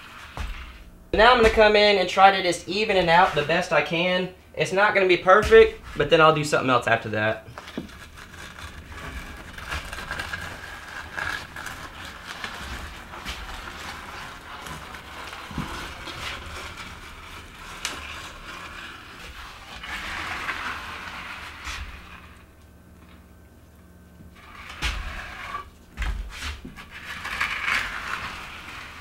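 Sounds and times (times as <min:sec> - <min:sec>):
board scraping across wet concrete: 0:07.6 - 0:22.4, 0:24.4 - 0:29.0.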